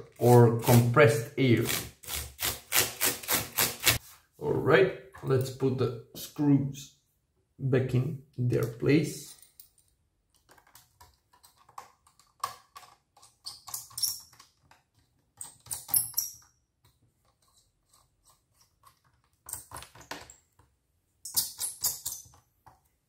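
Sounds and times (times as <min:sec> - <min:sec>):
screwdriver clicking and scraping: 0:09.5 - 0:20.4.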